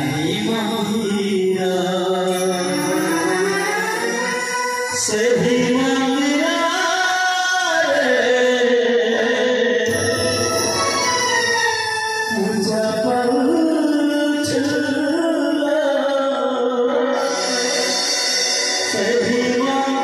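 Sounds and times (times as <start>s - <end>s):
instrumental accompaniment: 0.0s - 6.5s, 9.9s - 14.5s, 17.0s - 20.0s
person singing devotional song: 0.0s - 11.4s, 12.2s - 20.0s.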